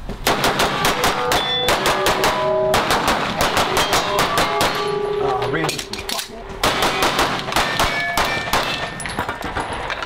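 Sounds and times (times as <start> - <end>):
rapid pistol fire: 0.2 - 4.8, 6.6 - 8.9
steel targets ringing: 0.6 - 9.6.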